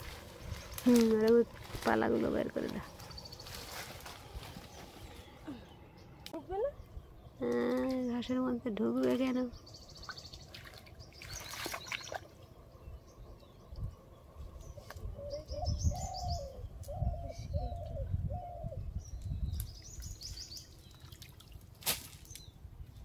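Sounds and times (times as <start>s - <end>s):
small birds chirping: 0.0s - 23.0s
low hooting bird: 11.2s - 20.5s.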